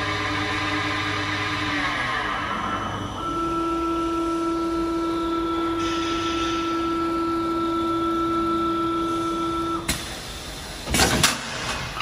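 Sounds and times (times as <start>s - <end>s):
lathe motor whine: 0.0s - 9.9s.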